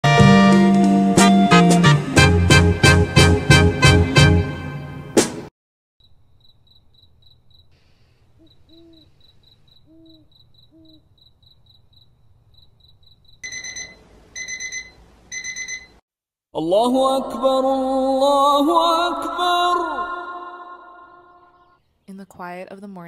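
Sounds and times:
crickets chirping: 6.0 - 14.0
owl hooting: 7.8 - 11.2
digital alarm clock beeping: 13.4 - 16.0.

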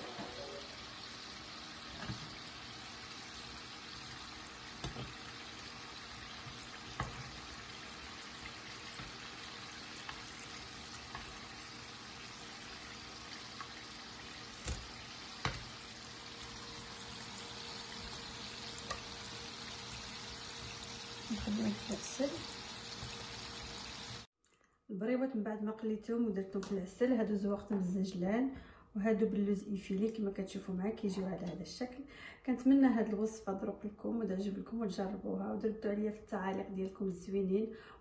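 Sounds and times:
pastry sizzling in oil: 0.0 - 24.3
metal tongs clicking on pan: 14.6 - 15.6.

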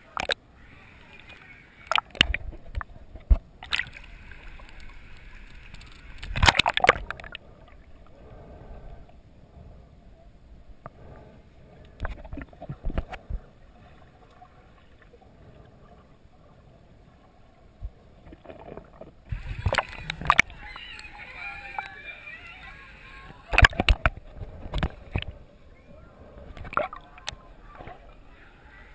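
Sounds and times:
water splashing: 0.0 - 9.1, 11.8 - 28.9
muffled underwater wash: 0.0 - 28.9
dull knocks underwater: 23.5 - 25.4.

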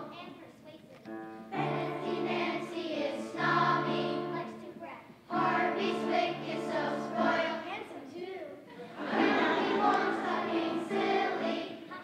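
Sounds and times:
children singing in chorus: 1.6 - 4.6, 5.3 - 7.6, 9.0 - 12.0.

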